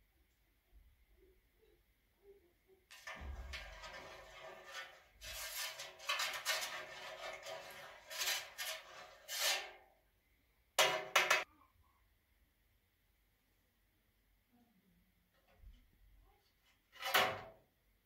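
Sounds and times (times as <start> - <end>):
metal spoon stirring in metal tray: 2.9 - 9.8.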